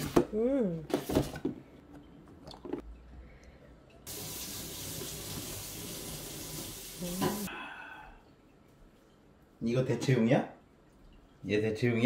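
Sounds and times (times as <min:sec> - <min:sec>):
running water hissing: 0:04.1 - 0:07.5.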